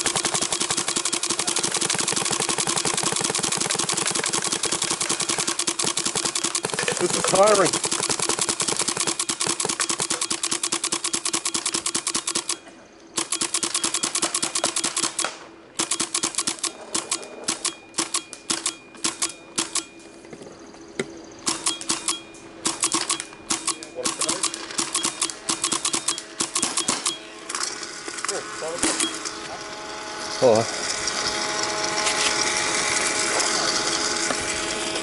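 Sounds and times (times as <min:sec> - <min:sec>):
paintball marker rapid firing: 0:00.0 - 0:12.6, 0:13.2 - 0:19.8, 0:21.5 - 0:27.2
steady low hum: 0:00.0 - 0:35.0.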